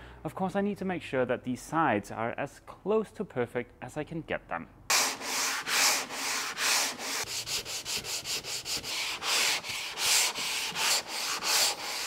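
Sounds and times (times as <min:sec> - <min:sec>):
sanding board rasping: 0:04.9 - 0:12.0.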